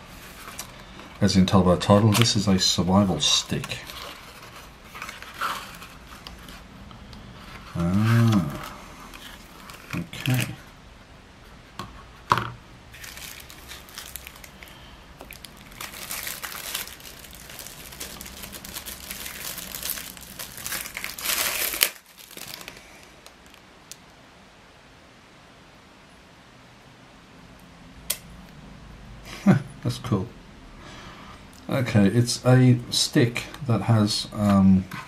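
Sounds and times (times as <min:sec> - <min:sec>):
plastic packaging crinkling: 0:00.2 - 0:06.6, 0:07.5 - 0:10.6, 0:12.9 - 0:23.7.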